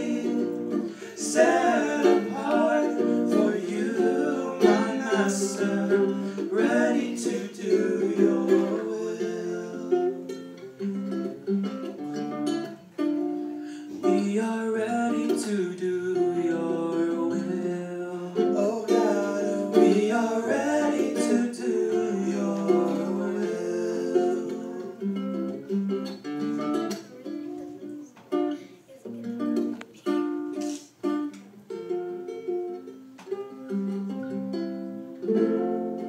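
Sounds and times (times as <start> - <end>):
men singing: 0.0 - 10.4, 14.0 - 25.2
acoustic guitar playing: 0.0 - 36.0.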